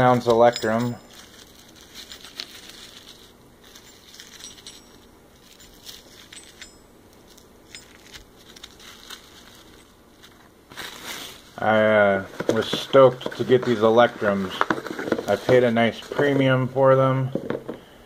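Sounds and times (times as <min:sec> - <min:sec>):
metal bars clinking together: 0:00.0 - 0:01.1.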